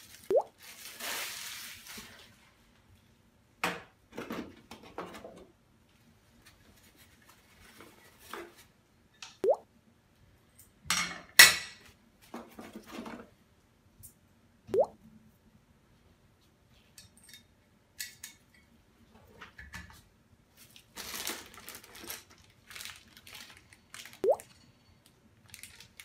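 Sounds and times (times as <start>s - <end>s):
plastic and paper rustling: 0.0s - 2.7s, 6.3s - 8.8s, 20.5s - 24.6s, 25.4s - 26.0s.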